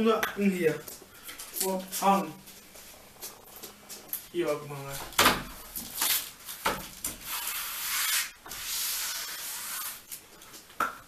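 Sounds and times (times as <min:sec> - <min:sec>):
hands rubbing paper poster: 0:07.2 - 0:10.1.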